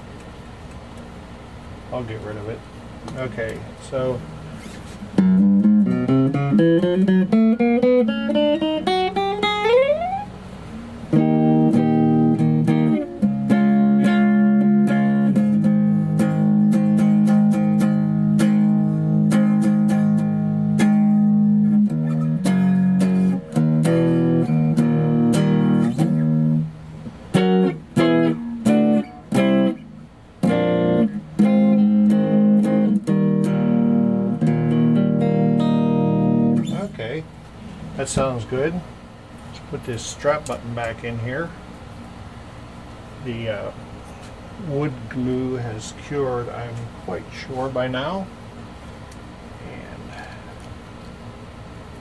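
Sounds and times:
electric guitar playing: 4.4 - 37.0.

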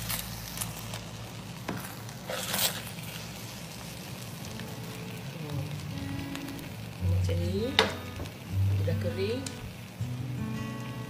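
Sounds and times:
faint sizzle: 0.0 - 11.0
spatula scraping rice in pot: 2.2 - 3.0.

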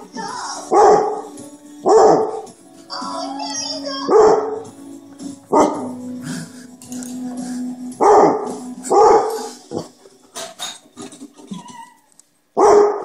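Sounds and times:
dog barking: 0.7 - 2.5, 4.1 - 4.7, 5.5 - 5.9, 8.0 - 9.9, 12.6 - 13.0.

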